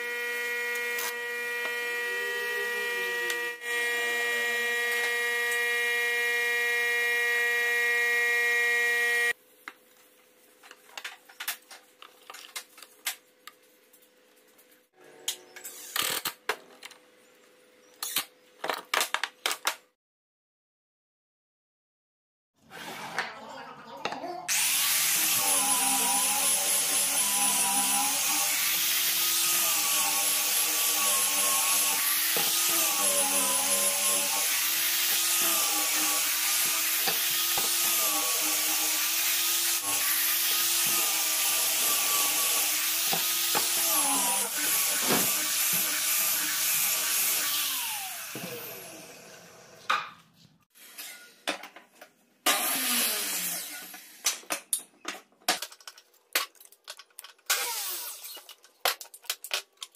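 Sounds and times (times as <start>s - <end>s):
angle grinder sanding wood: 0.0s - 9.4s, 24.5s - 49.9s
grinder winding down: 0.0s - 9.4s, 24.5s - 49.8s, 57.5s - 58.4s.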